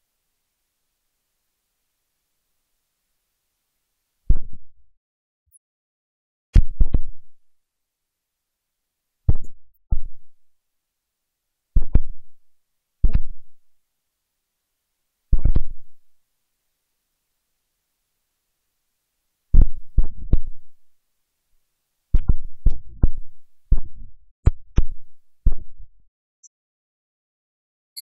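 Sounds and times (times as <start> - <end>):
low thumps on microphone: 4.3 - 4.6, 6.6 - 7.2, 9.3 - 10.3, 11.8 - 12.2, 13.0 - 13.4, 15.3 - 15.8, 19.6 - 20.6, 22.2 - 25.8.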